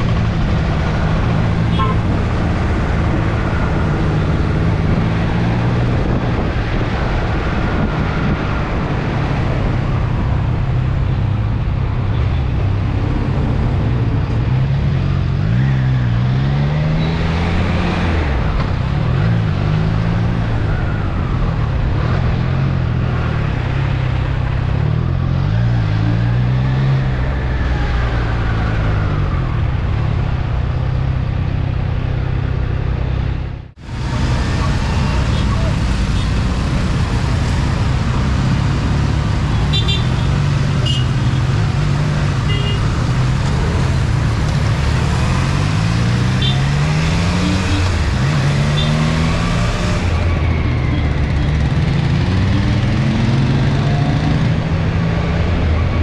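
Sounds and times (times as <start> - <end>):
wind rush: 2.2 - 10.7.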